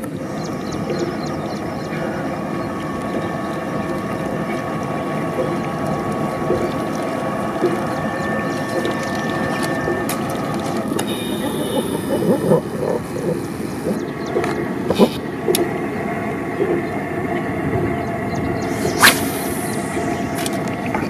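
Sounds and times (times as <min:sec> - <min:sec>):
fishing reel whirring: 0:18.6 - 0:20.8.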